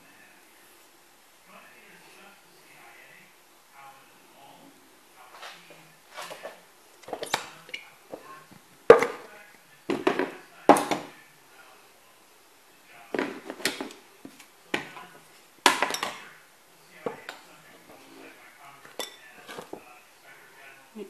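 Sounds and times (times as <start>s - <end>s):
containers and utensils knocking: 8.9s - 9.3s, 9.9s - 11.1s, 15.7s - 16.3s.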